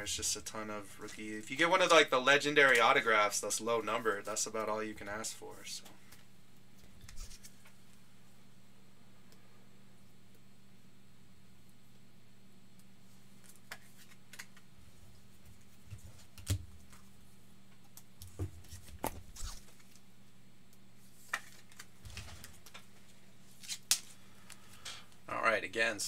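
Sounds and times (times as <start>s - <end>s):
faint steady hum: 0.0s - 26.0s
rustling plastic and card: 6.1s - 7.8s, 13.3s - 14.7s, 21.0s - 24.9s.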